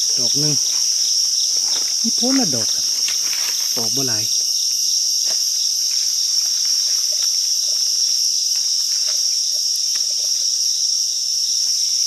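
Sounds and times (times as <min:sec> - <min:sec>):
chorus of forest insects: 0:00.0 - 0:12.0.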